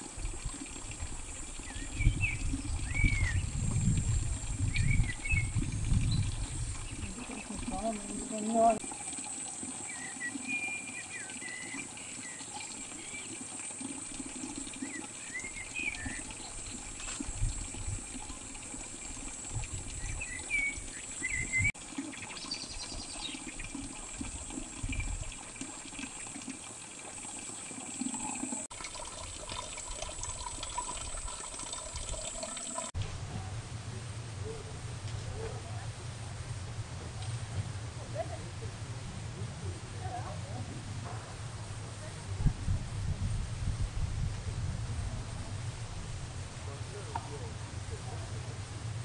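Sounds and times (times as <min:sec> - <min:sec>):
water running: 0:00.0 - 0:33.1.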